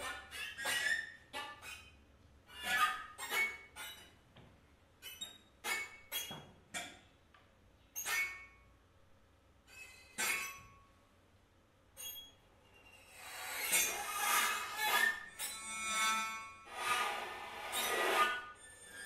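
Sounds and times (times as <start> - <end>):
string quartet squeaks and scrapes: 0.0 - 1.9, 2.5 - 4.0, 12.0 - 19.0.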